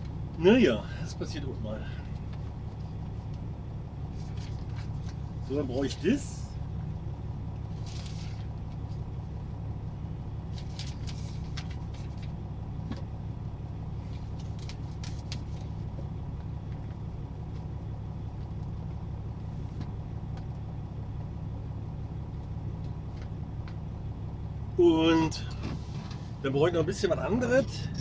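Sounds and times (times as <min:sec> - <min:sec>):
diesel engine idling: 0:00.0 - 0:28.0
papers rustling: 0:04.1 - 0:05.4, 0:07.8 - 0:09.0, 0:10.5 - 0:12.4, 0:14.0 - 0:15.9.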